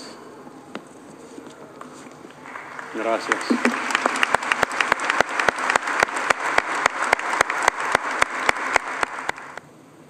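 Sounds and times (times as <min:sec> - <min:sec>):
crowd applauding: 0:02.3 - 0:09.6
sharp nearby claps: 0:02.4 - 0:09.6.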